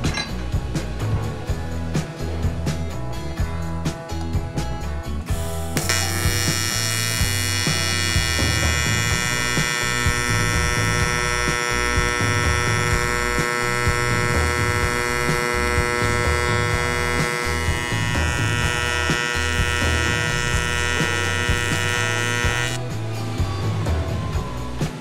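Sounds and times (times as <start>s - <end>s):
welding arc hum: 5.6s - 22.8s.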